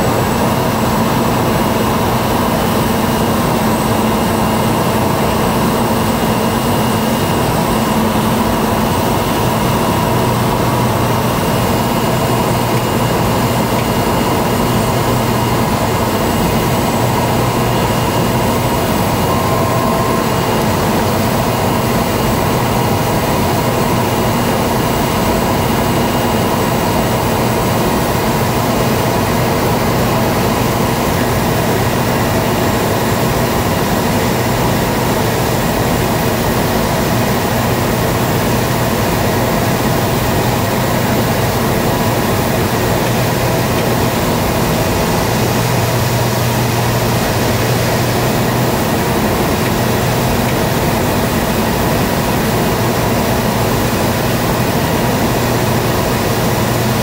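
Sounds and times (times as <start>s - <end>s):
turboprop engine droning: 0.0s - 57.0s
short beep: 19.3s - 20.5s.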